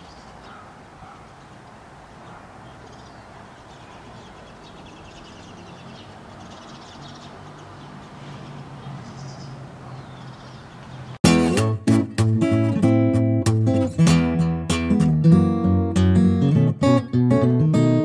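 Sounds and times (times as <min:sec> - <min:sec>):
soft bird chirps: 0:02.2 - 0:11.2
strummed acoustic guitar music: 0:11.2 - 0:18.0.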